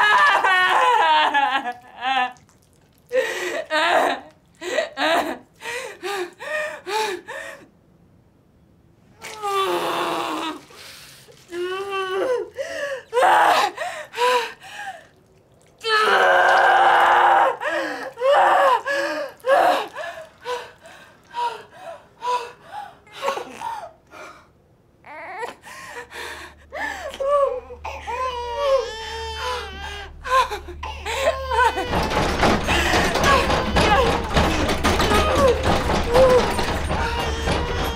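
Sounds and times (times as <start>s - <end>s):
low rumble: 26.6s - 37.0s.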